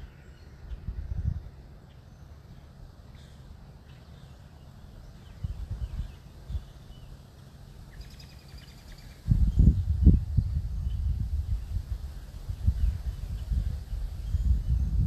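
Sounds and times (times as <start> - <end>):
wind buffeting microphone: 0.6 - 1.6, 5.2 - 6.8, 9.2 - 15.0
faint bird chirps: 7.9 - 9.9.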